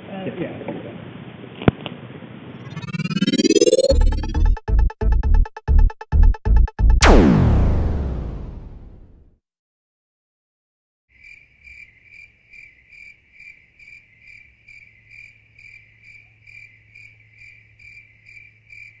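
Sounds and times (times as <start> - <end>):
low hum: 2.6 - 9.2
cricket chirping: 11.2 - 19.0.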